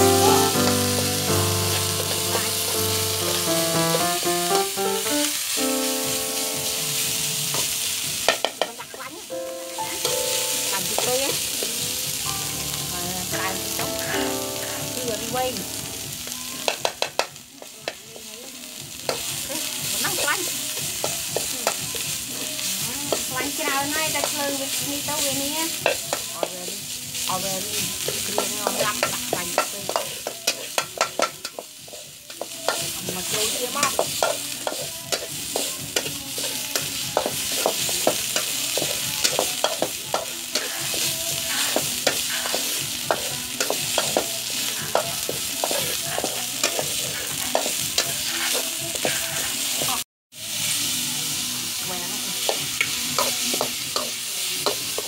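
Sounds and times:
chicken frying in a wok: 0:00.0 - 0:55.0
paste sizzling in hot oil: 0:00.0 - 0:55.0
metal spatula scraping a wok: 0:29.6 - 0:50.0.

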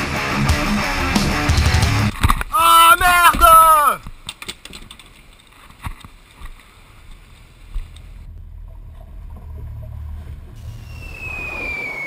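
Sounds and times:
wind: 0:02.0 - 0:12.0
water: 0:02.1 - 0:12.0
boat motor rumble: 0:07.0 - 0:11.8.

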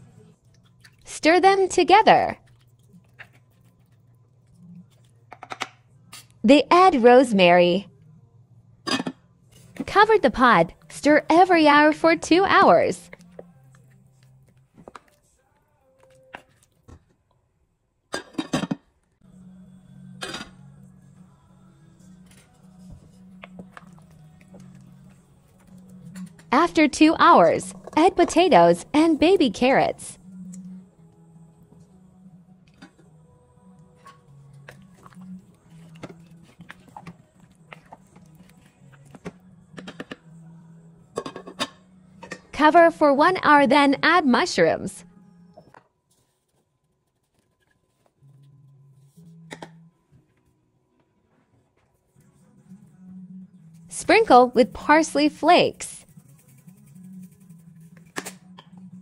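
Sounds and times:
spoon stirring thick stew: 0:02.4 - 0:04.0.

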